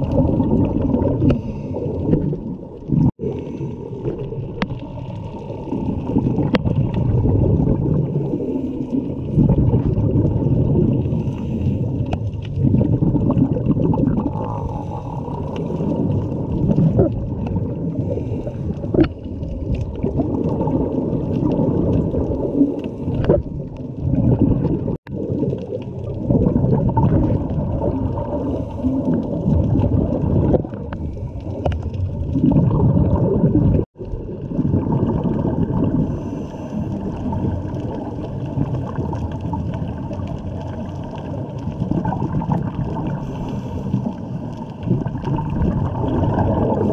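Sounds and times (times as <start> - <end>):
exhaled bubbles gurgling: 0.0 - 46.9
diver regulator breathing: 1.2 - 2.2, 11.0 - 12.3, 14.4 - 16.3, 17.9 - 19.3, 28.3 - 29.4, 30.9 - 32.0, 35.9 - 37.6, 43.1 - 44.8.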